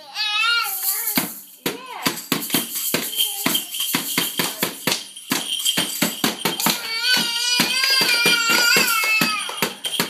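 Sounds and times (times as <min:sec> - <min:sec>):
toy drum beaten with sticks: 0:00.8 - 0:10.0.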